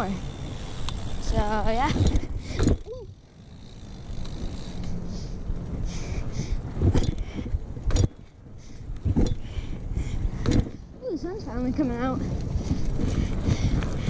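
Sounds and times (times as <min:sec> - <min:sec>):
bike tyres rumbling on asphalt: 0:00.0 - 0:14.0
sharp knocks from bike: 0:01.9 - 0:03.0, 0:06.8 - 0:08.3, 0:10.4 - 0:10.8
wind on microphone: 0:03.8 - 0:14.0.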